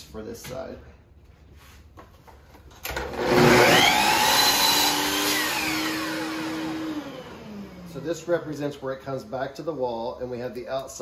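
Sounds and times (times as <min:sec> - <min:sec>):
miter saw cutting wood: 0:03.0 - 0:08.2.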